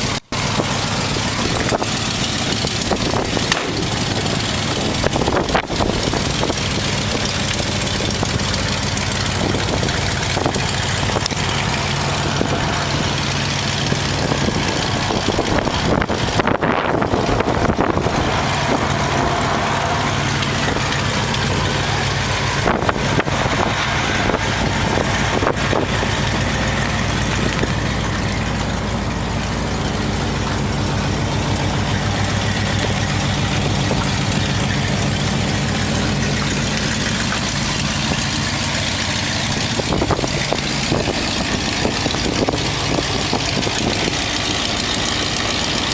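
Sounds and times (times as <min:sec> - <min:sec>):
pickup truck engine idling: 0:00.0 - 0:45.9.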